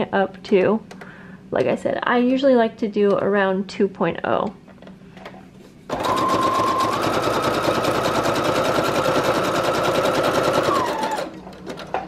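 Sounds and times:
sewing machine stitching paper: 5.9 - 12.0.

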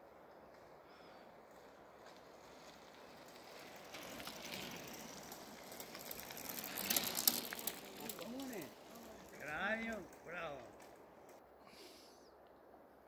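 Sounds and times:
bike tyres rolling over gravel: 0.1 - 11.4
sharp crackles: 1.5 - 11.4.

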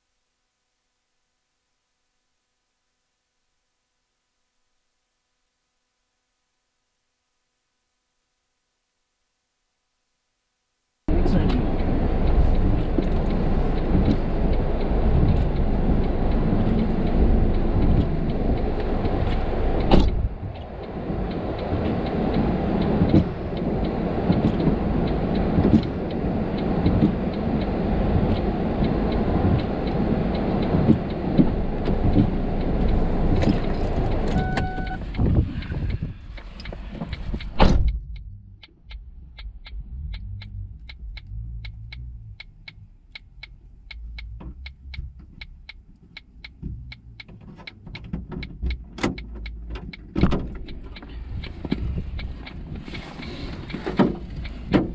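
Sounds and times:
car cabin road rush: 11.1 - 54.9.

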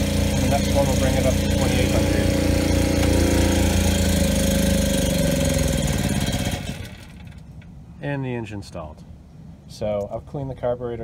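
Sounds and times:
generator engine bogging down: 0.0 - 7.8.

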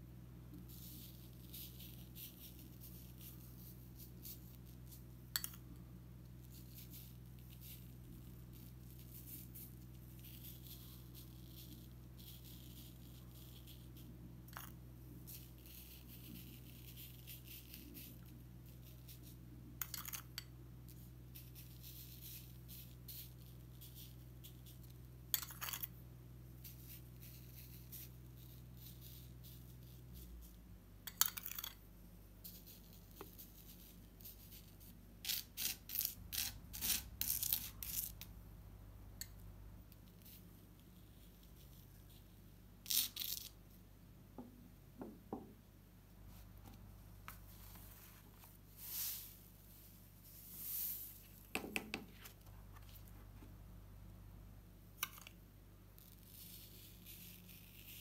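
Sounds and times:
steady low hum: 0.0 - 57.1
sand rustling from a spoon: 0.6 - 5.6, 6.3 - 30.5, 47.3 - 51.5, 56.0 - 58.0.

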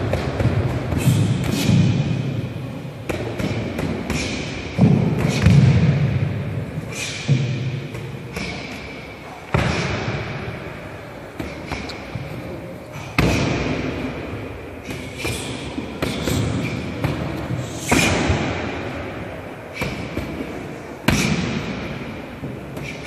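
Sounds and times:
kicks slapping a padded shield: 21.1 - 21.9.

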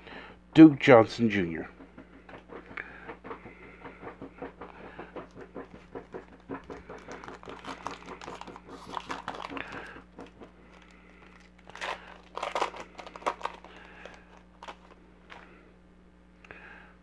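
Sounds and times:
foil wrapper tearing and crinkling: 6.6 - 15.5.

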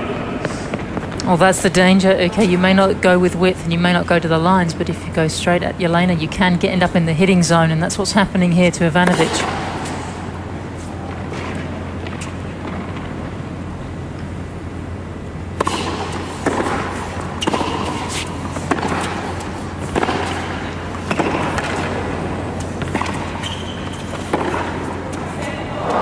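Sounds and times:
arena hum: 0.0 - 26.0
tennis ball hits: 15.6 - 25.4.

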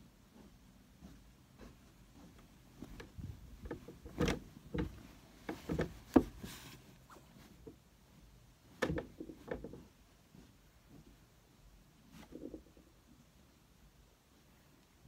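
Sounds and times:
fabric rustling: 0.0 - 11.4
soft thumps against mattress: 0.3 - 7.8.

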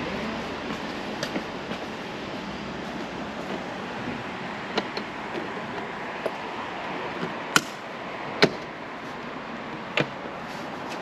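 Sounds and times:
sharp clicks and knocks: 4.7 - 6.4.

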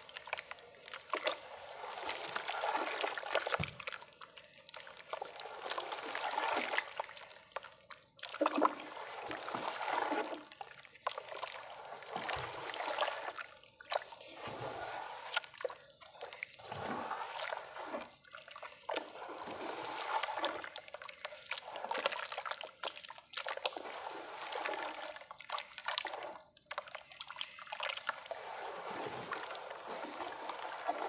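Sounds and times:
hands squelching wet slurry: 0.0 - 31.0
small wet clicks: 25.4 - 28.3.

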